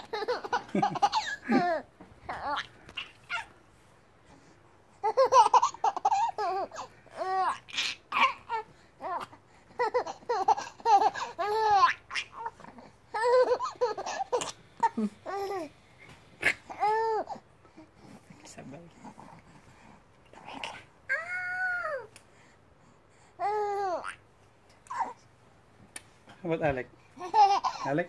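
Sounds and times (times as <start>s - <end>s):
baby laughing: 0.0s - 3.6s, 5.0s - 15.7s, 27.2s - 28.0s
baby babbling: 2.3s - 3.5s, 5.0s - 15.7s, 16.4s - 17.4s, 20.4s - 22.1s, 23.4s - 24.2s, 24.9s - 25.2s.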